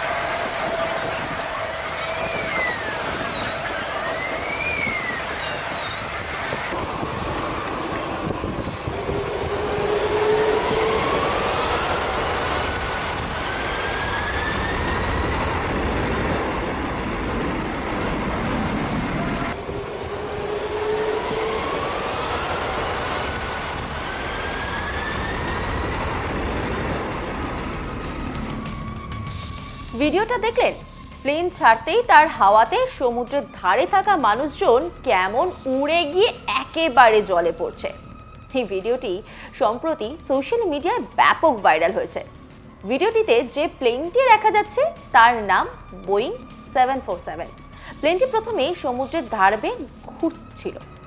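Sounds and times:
jet blast rushing: 0.0s - 30.0s
jet engines whining: 0.0s - 51.0s.

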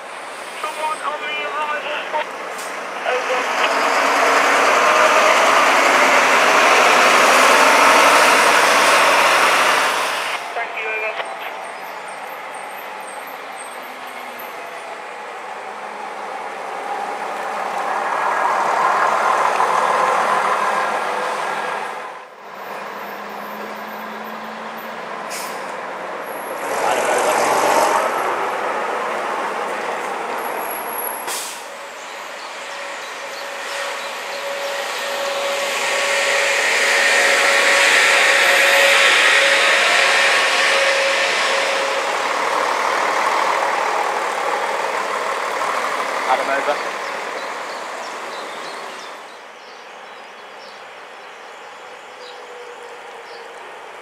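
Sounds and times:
diesel buses driving past: 0.0s - 54.0s
air brake hiss: 25.3s - 25.7s, 31.2s - 31.8s, 33.7s - 42.6s.

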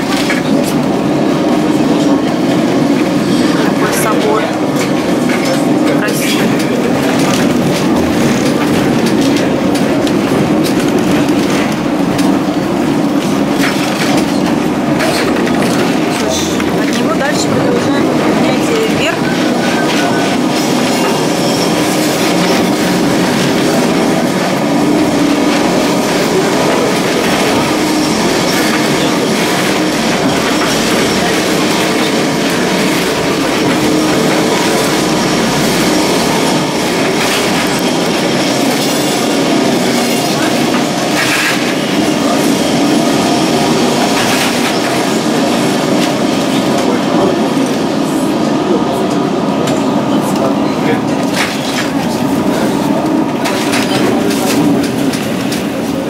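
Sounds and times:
tram rattling on rails: 0.0s - 56.0s.

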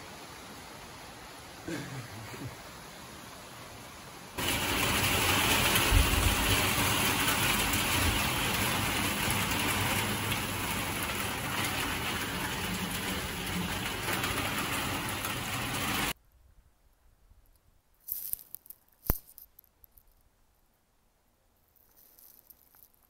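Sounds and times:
heavy rain on road: 4.3s - 16.2s.

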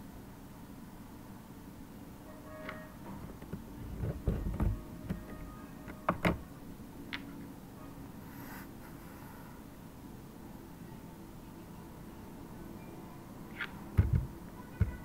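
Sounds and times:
low steady hum: 0.0s - 15.0s
keyboard key presses: 13.6s - 15.0s.

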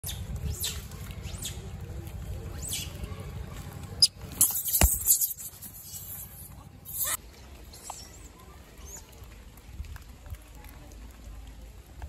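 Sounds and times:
monkey shrieks: 4.0s - 6.3s, 6.9s - 7.2s
baby monkeys squeaking: 4.0s - 7.2s.

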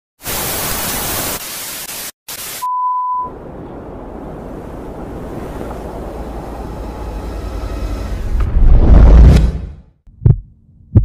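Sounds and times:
tv static hiss: 0.2s - 2.7s
low rushing whoosh: 3.4s - 9.8s.

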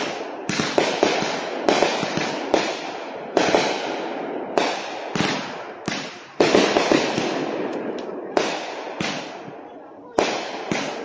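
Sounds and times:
fireworks bangs: 0.0s - 11.0s
small firework pops: 4.6s - 11.0s.

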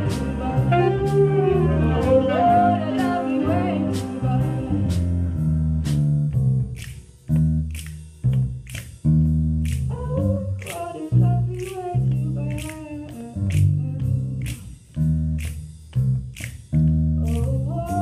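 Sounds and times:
jazz big band playing: 0.0s - 18.0s
strong bass notes: 0.0s - 18.0s
woman singing into microphone: 0.7s - 4.7s.

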